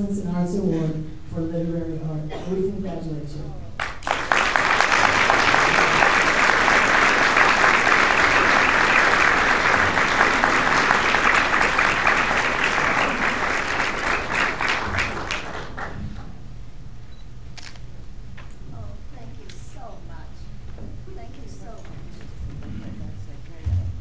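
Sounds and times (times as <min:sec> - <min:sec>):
audience applauding: 0:03.8 - 0:16.0.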